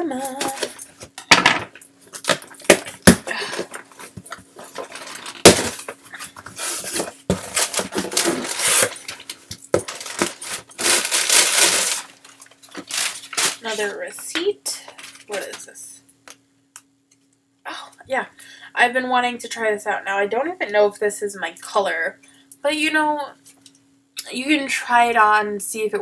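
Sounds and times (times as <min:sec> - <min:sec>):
paper and cardboard rustling: 0:02.2 - 0:14.1.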